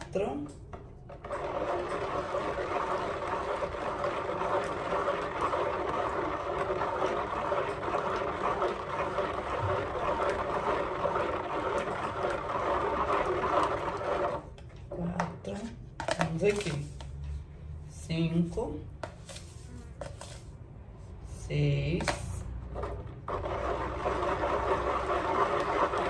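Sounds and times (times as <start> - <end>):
spoon stirring liquid in bowl: 0.0 - 17.3.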